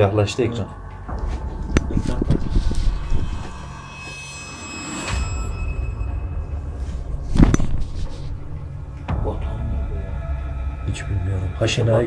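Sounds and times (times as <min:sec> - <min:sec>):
heavy thump: 0:07.2 - 0:08.8.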